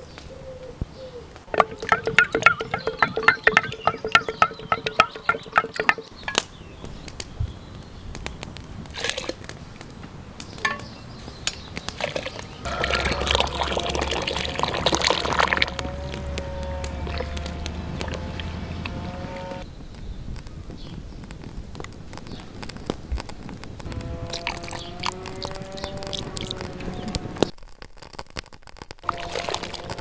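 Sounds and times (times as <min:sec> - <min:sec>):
wood fire crackling: 0:01.3 - 0:30.0
liquid pouring: 0:01.5 - 0:06.1, 0:12.0 - 0:18.5, 0:24.3 - 0:26.7, 0:29.1 - 0:30.0
wooden spoon tapping a clay bowl: 0:01.5 - 0:06.5.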